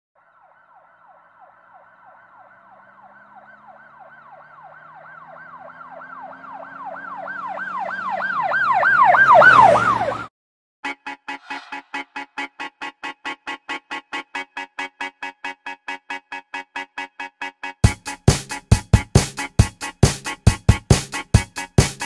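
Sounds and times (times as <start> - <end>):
siren yelping: 0.2 - 10.3
vehicle engine: 1.0 - 10.2.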